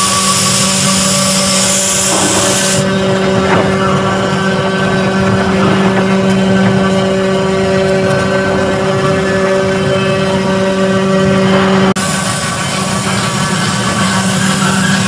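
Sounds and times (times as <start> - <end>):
loud high hiss: 0.0 - 2.9, 12.0 - 15.0
router spindle whine: 0.0 - 15.0.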